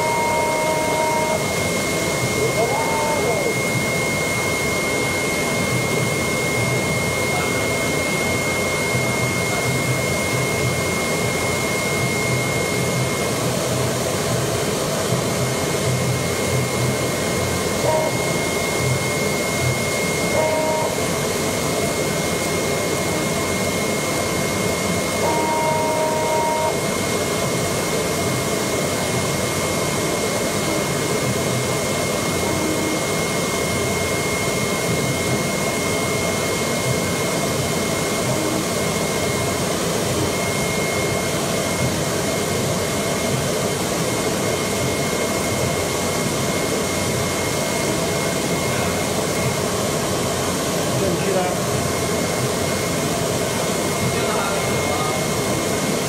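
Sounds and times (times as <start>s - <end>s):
brief higher tones: 0.0s - 3.7s, 17.8s - 18.8s, 20.1s - 21.1s, 25.2s - 26.8s, 32.3s - 33.9s
cardboard cutter machine running: 0.0s - 14.5s, 15.8s - 50.0s.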